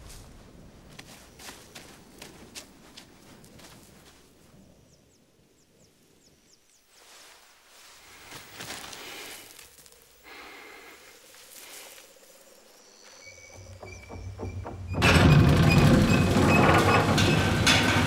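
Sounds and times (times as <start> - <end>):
hands rustling through grass: 6.8 - 13.2.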